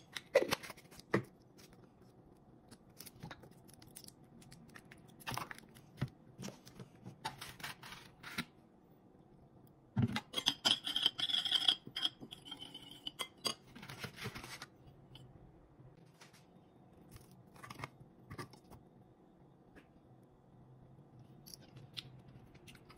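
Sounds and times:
metal spoon scraping ceramic bowl: 10.2s - 13.6s.

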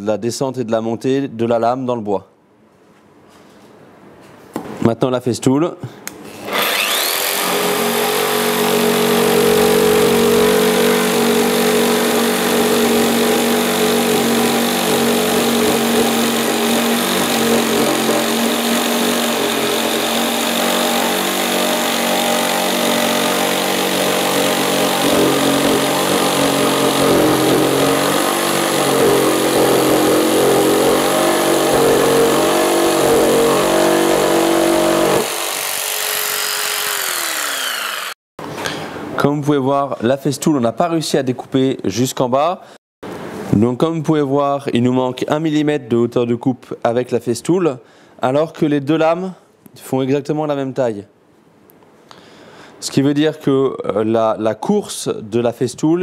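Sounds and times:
jigsaw blade sawing wood: 6.4s - 38.2s
jigsaw motor whining: 6.4s - 38.2s.

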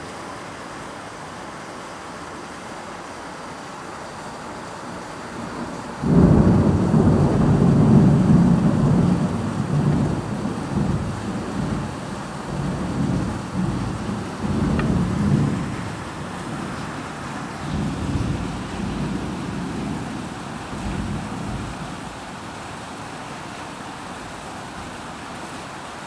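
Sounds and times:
heavy rain: 0.0s - 26.0s
thunder rumbling: 5.4s - 22.6s.

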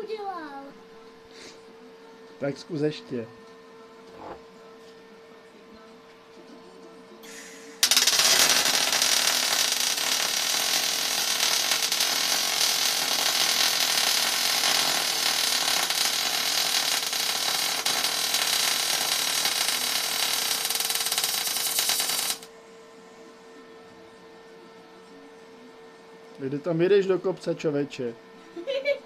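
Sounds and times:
welder arc crackling: 7.3s - 22.5s.

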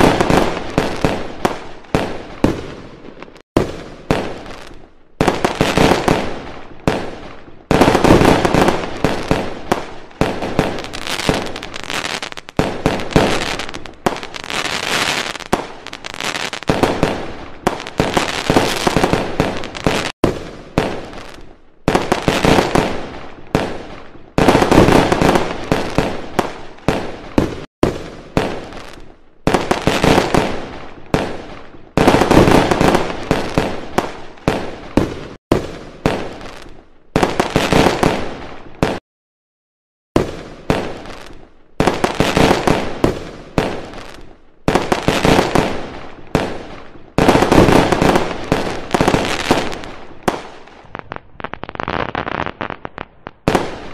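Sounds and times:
fireworks bursting: 0.0s - 39.0s, 40.2s - 53.9s.

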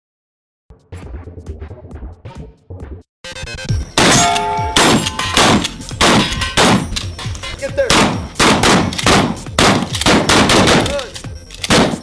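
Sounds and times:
background music: 0.7s - 12.0s
shotguns firing: 4.0s - 7.0s, 7.9s - 12.0s.

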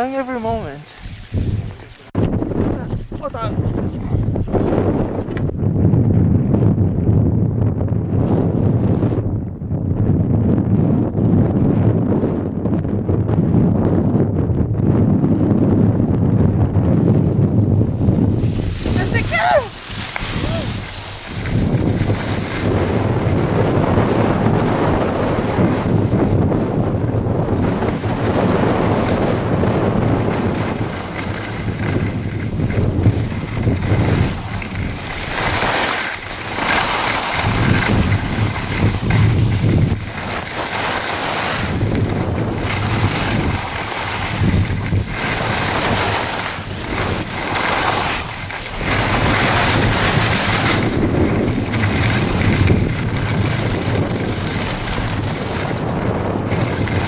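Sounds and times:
skis scraping over snow: 0.0s - 5.5s, 17.2s - 57.0s
wind rushing over microphone: 0.0s - 57.0s.

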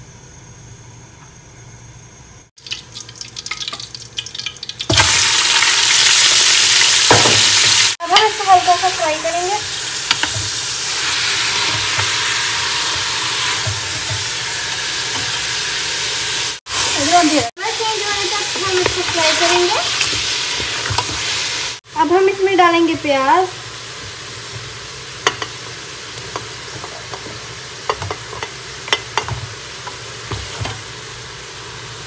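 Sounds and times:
seeds crackling in oil: 2.6s - 6.0s
meat sizzling loudly: 2.6s - 32.0s.

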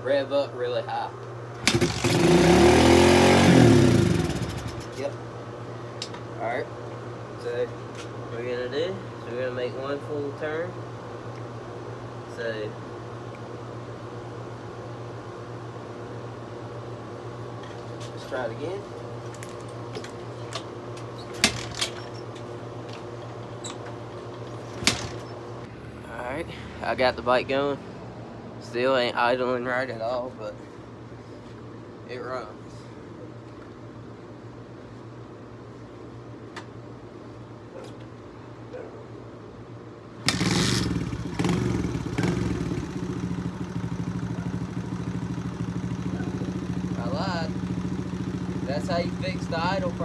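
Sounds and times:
motorbike engine kick-started: 1.6s - 2.6s, 40.2s - 43.1s
engine revving: 1.6s - 4.9s, 40.2s - 50.0s
engine idling: 40.3s - 50.0s.

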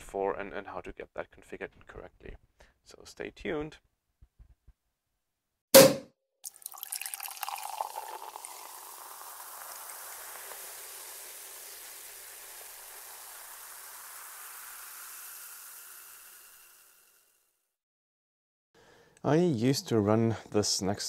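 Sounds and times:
champagne bubbles fizzing: 6.4s - 17.3s.

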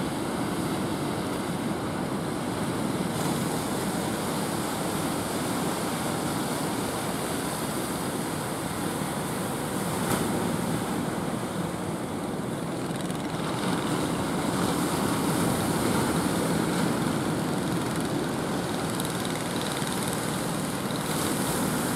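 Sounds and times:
boat engine running: 11.1s - 21.9s.

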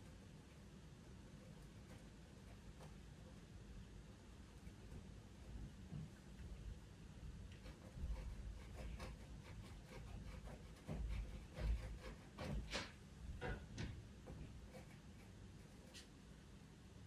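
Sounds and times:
pencil scratching on paper: 1.4s - 3.5s, 7.5s - 13.0s, 14.3s - 16.1s.

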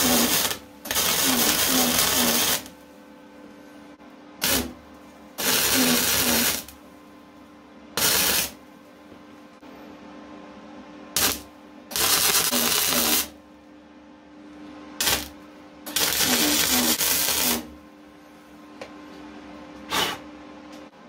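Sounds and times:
welder arc crackling and buzzing: 0.0s - 3.0s, 4.4s - 6.9s, 8.0s - 8.6s, 11.1s - 13.4s, 15.0s - 17.8s.

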